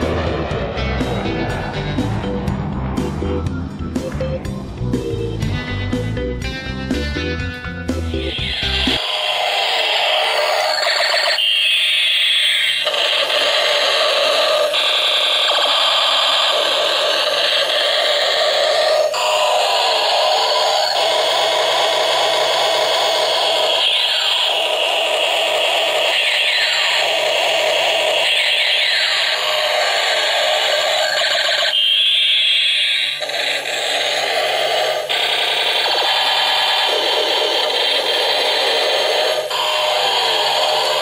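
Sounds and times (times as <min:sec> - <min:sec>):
propeller motor hum: 0:00.0 - 0:10.7
toy siren-like sound effects: 0:08.2 - 0:41.0.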